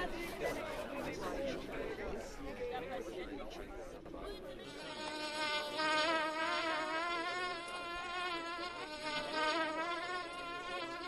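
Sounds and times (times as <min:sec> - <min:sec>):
fly buzzing: 0:04.7 - 0:11.0.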